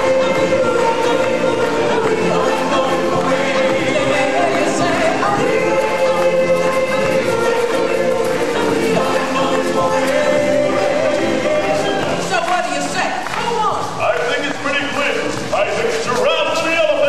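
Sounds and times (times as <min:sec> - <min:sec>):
group of voices singing: 0:00.0 - 0:13.4
backing music: 0:00.0 - 0:17.0.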